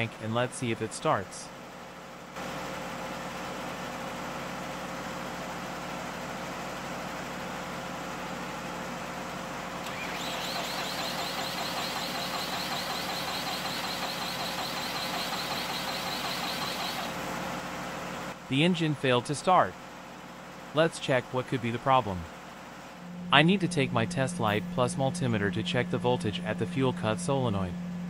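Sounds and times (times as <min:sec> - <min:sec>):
starter motor cranking engine: 0:09.8 - 0:17.2
steady hum: 0:09.8 - 0:28.0.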